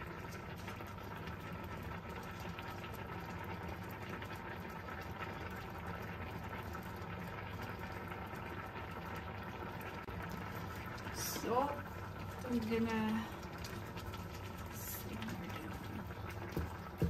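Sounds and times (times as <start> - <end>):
sauce simmering in a pan: 0.0 - 17.0
wooden spatula stirring: 10.3 - 17.0.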